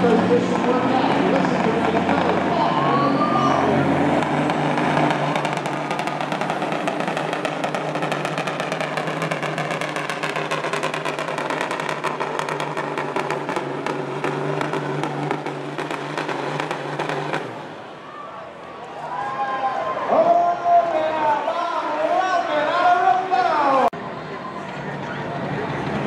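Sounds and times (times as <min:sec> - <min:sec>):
truck diesel engine under load: 0:00.0 - 0:18.8, 0:21.0 - 0:26.0
rapid crackling: 0:03.9 - 0:17.8.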